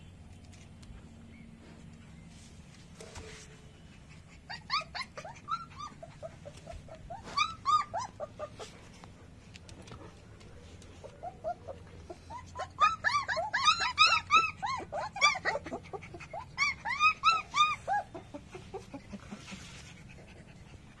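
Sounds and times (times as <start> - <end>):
puppies whimpering: 3.9 - 9.4, 10.1 - 21.0.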